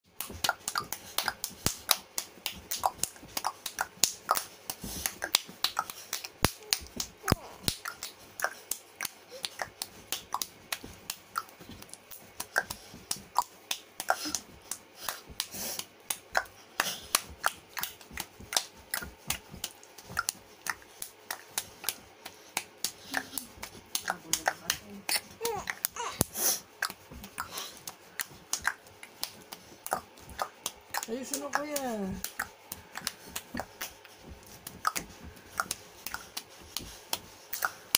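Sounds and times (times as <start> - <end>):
faint voice sounds: 6.6 - 7.7.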